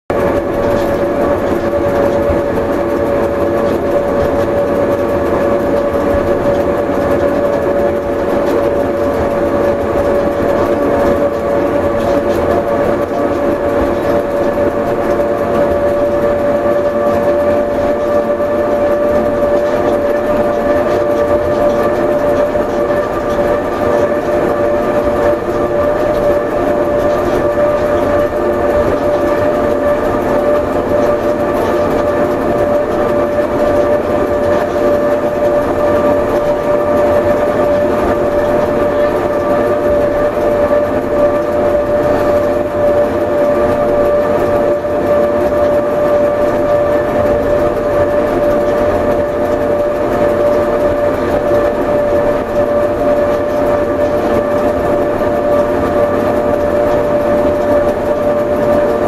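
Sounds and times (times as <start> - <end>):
continuous rumble: 0.1 - 59.0
electric railcar whine: 0.1 - 59.0.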